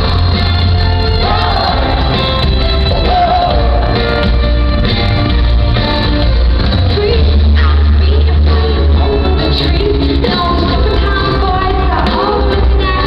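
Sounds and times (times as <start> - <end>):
pop-rock band with booming bass: 0.0 - 13.0
woman singing into microphone: 6.9 - 13.0.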